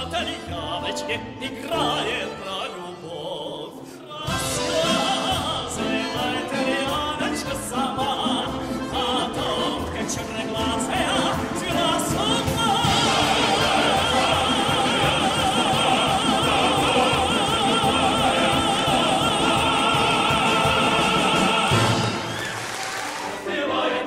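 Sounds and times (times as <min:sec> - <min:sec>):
male tenor singing: 0:00.0 - 0:22.2
accordions and orchestra playing: 0:00.0 - 0:24.0
male choir singing: 0:04.1 - 0:22.4, 0:23.1 - 0:24.0.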